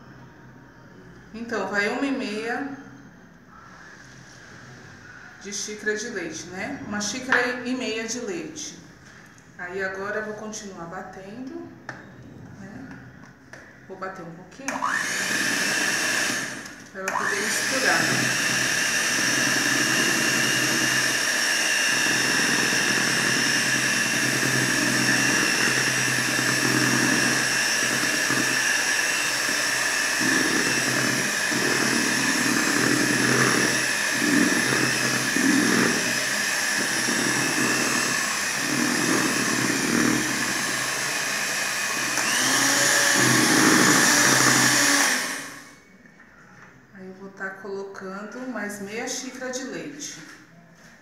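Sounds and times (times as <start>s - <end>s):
electric hand mixer running: 14.7s - 45.9s.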